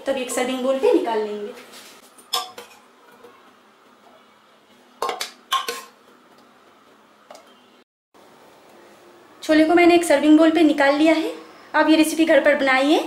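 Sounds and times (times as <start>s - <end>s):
spoon clinking against pot and bowl: 2.2s - 2.9s, 5.0s - 6.0s.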